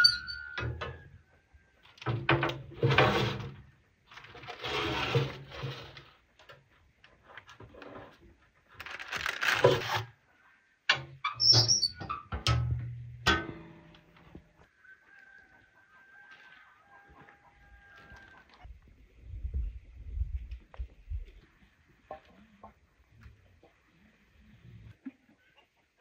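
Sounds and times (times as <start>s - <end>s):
metal tray scraping and knocking: 2.1s - 3.6s, 4.5s - 6.1s, 10.9s - 13.9s.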